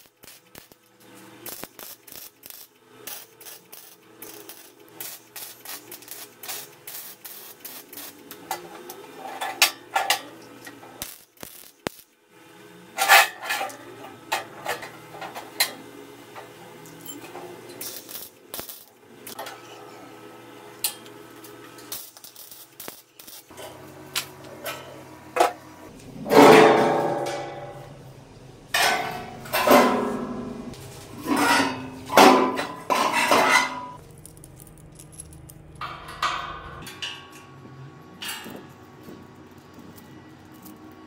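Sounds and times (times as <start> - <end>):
metal frame clanking on tiled floor: 35.8 - 37.4.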